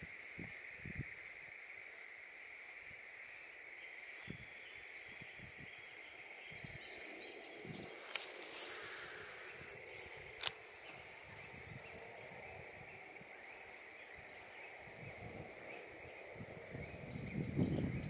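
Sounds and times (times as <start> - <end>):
sharp clicks: 7.7 - 12.1.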